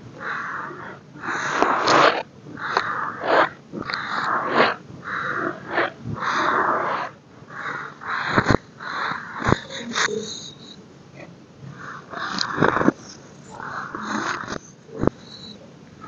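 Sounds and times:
sharp crackles and snaps: 0:01.5 - 0:04.7.

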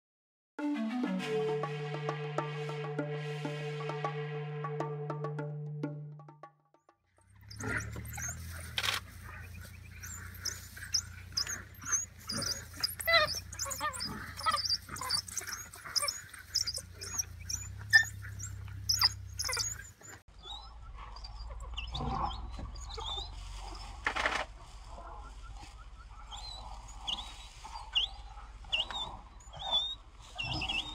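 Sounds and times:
wild dogs high-pitched chirping: 0:07.3 - 0:30.9.

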